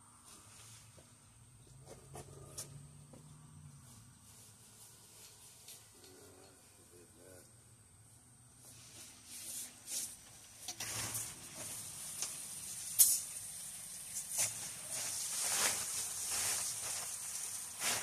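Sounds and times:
water spilling off canopy: 10.7 - 18.0
fabric rustling: 14.4 - 18.0.

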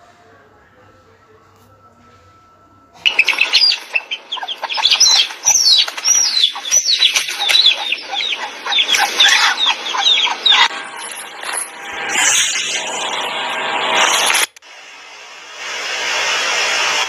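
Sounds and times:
hen squawking: 3.0 - 10.7.

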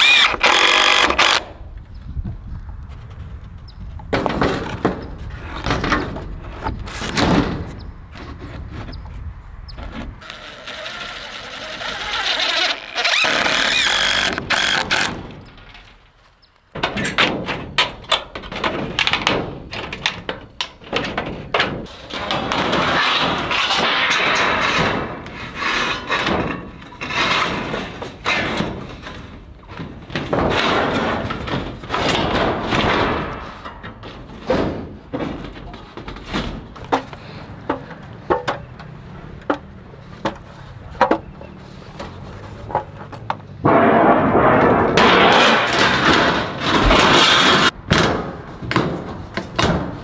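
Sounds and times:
impact driver driving screw into wood: 0.0 - 1.5, 10.2 - 15.2
metal roofing panel scraping and clanking: 9.9 - 39.3, 40.0 - 50.0.

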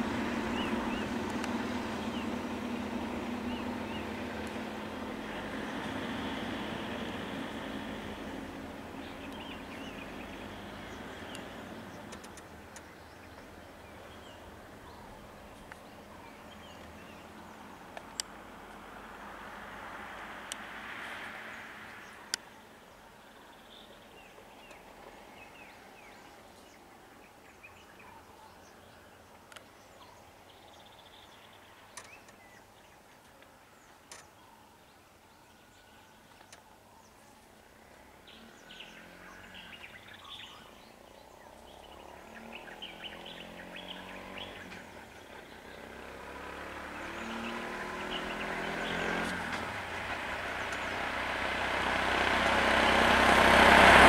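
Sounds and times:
birds chirping: 0.0 - 19.5, 20.6 - 54.0
vehicle engine approaching: 0.0 - 27.2, 37.6 - 54.0
sharp clicks: 12.1 - 12.9.

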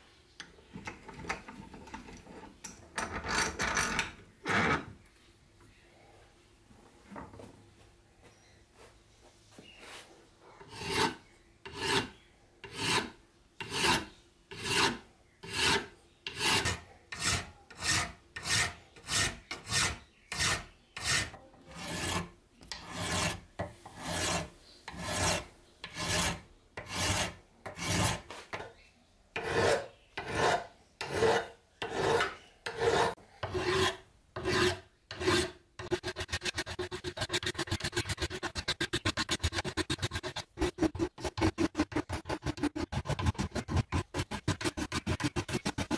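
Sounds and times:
file rasping on aluminum: 10.6 - 28.2, 29.4 - 45.9.

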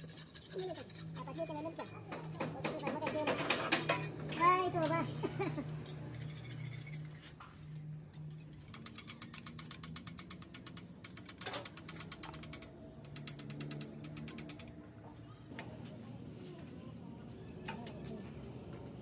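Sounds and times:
ratchet wrench clicking: 8.3 - 14.8.

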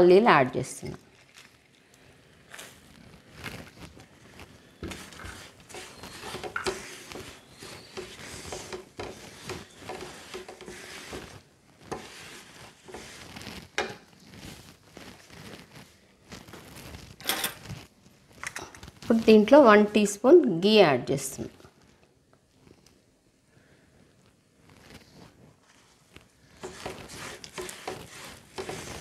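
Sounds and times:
spatula scraping a pan: 4.6 - 15.7, 26.4 - 29.0
spatula knocking: 4.8 - 14.1, 26.6 - 29.0.

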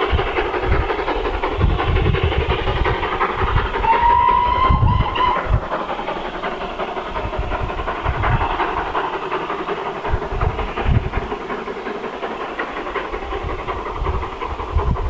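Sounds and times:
steam locomotive exhaust hissing: 0.0 - 15.0.

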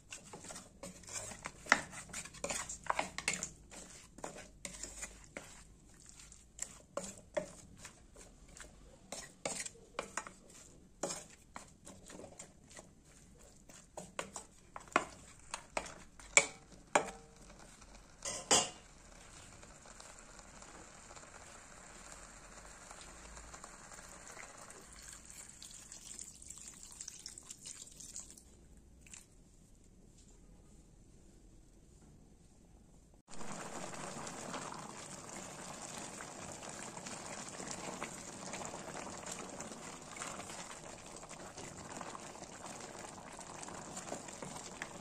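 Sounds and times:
water pouring into a wok: 19.1 - 28.5, 33.3 - 45.0.

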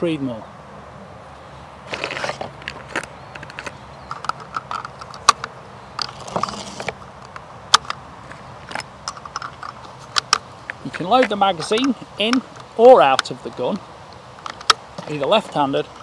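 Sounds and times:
metallic cartridge clicks: 2.9 - 8.0, 8.6 - 16.0.

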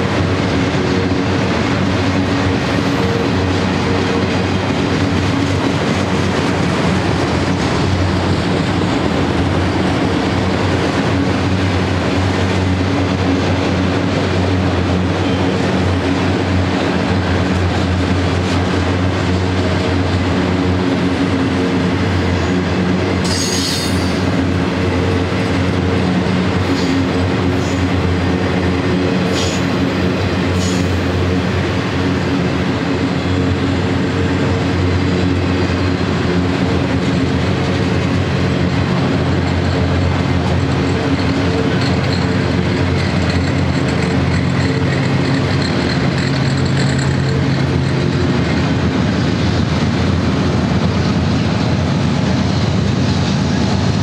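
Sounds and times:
diesel locomotive hum: 0.0 - 54.0
train wheels rumbling on rail: 0.0 - 54.0
high wheel squeals: 23.2 - 24.3, 39.4 - 48.8.

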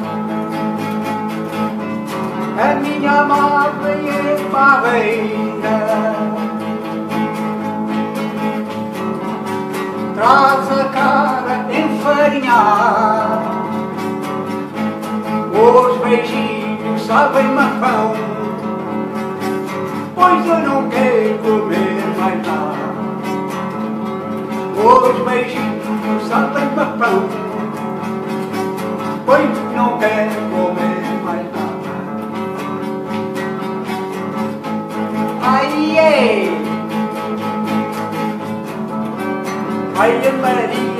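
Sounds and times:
strummed nylon-string guitar: 0.0 - 40.9
man singing: 2.2 - 7.0, 9.9 - 14.0, 15.2 - 19.0, 19.9 - 23.3, 24.6 - 28.1, 29.0 - 32.2, 35.2 - 37.3, 39.8 - 40.9.

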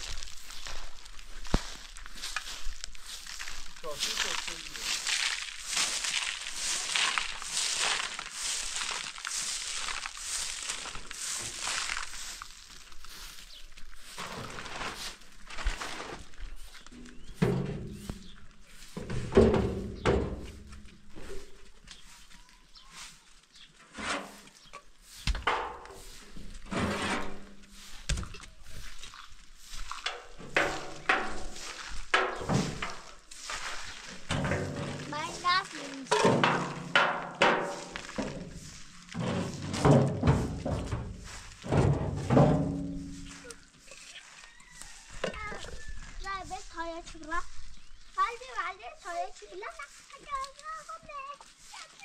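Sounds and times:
broom sweeping gravelly dirt: 0.0 - 52.0
metal drums scraping: 14.0 - 21.6, 23.8 - 28.9, 29.6 - 44.0
metal drums knocking and thudding: 17.0 - 18.3, 18.9 - 21.5, 25.3 - 28.4, 30.0 - 33.2, 34.1 - 43.4.

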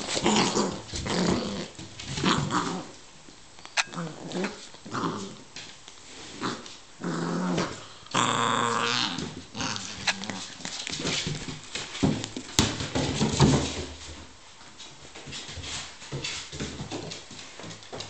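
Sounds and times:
puppy growling: 0.0 - 3.0, 3.8 - 5.5, 6.4 - 11.1.

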